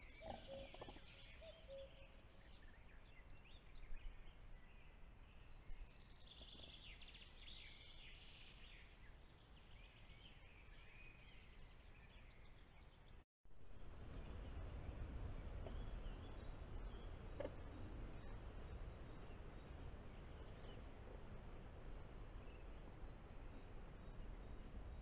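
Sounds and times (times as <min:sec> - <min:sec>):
songbirds chirping: 0:00.0 - 0:13.2, 0:14.1 - 0:25.0
microphone hiss and rumble: 0:13.5 - 0:25.0.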